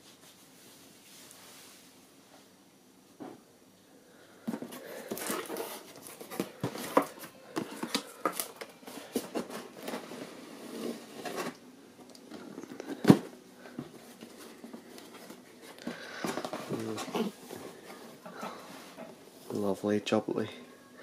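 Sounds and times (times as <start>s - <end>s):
cardboard flaps rustling and scraping: 4.5s - 11.6s, 12.4s - 19.6s
boxed toy sliding: 9.1s - 11.6s.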